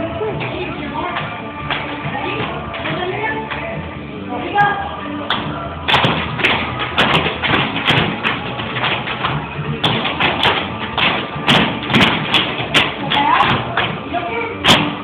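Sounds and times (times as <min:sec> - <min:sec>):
music playing: 0:00.0 - 0:15.0
tap shoes on wooden floor: 0:05.9 - 0:14.0.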